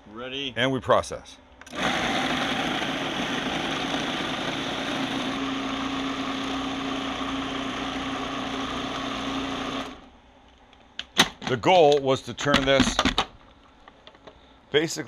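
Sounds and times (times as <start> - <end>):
food processor chopping: 1.7 - 10.0.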